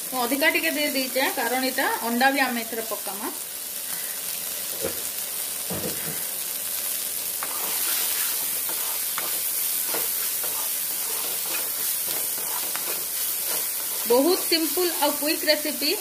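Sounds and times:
vegetables sizzling in oil: 0.0s - 16.0s
wooden spatula tapping and scraping: 8.4s - 15.2s.

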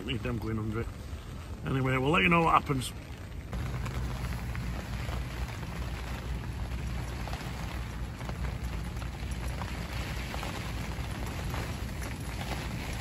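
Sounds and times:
rain on tent fabric: 0.0s - 13.0s.

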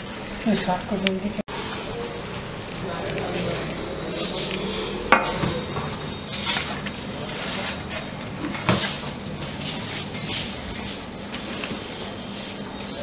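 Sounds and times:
metal spatula scraping baking tray: 3.4s - 10.6s.

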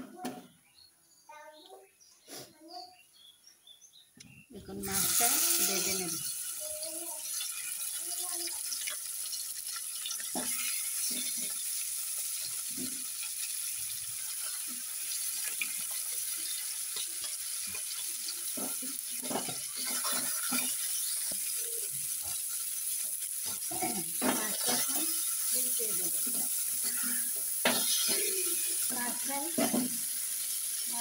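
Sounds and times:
fish sizzling in hot oil: 4.7s - 31.0s
spatula knocking and scraping pan: 10.2s - 11.7s, 14.3s - 21.6s, 23.0s - 30.0s.

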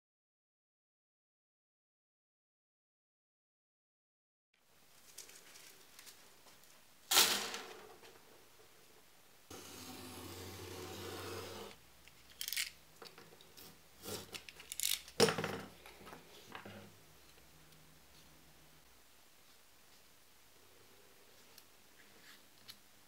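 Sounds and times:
scraping noise: 9.5s - 11.8s
tools set down on wooden bench: 15.2s - 15.8s.

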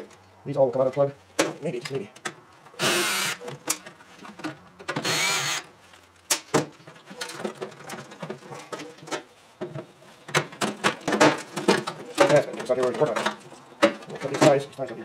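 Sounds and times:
cordless drill running: 2.8s - 3.4s, 5.0s - 5.7s.

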